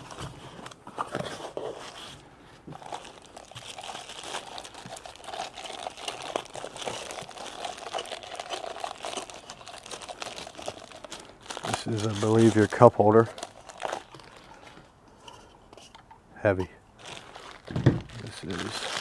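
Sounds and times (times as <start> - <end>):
plastic bag crinkling: 2.8 - 14.7, 17.0 - 19.0.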